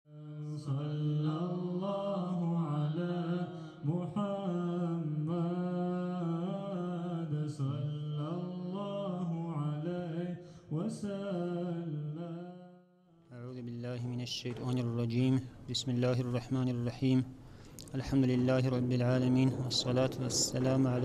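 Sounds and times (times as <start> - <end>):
man chanting melodically: 13.3 - 21.0.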